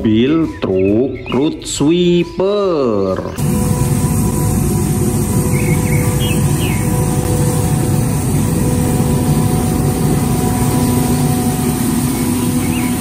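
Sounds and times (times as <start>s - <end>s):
street sweeper truck droning: 3.3s - 13.0s.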